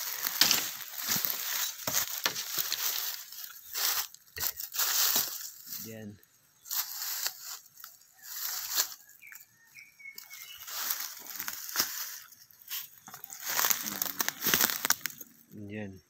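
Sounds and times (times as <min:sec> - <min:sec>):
footsteps crunching dry leaves: 0:00.0 - 0:15.4.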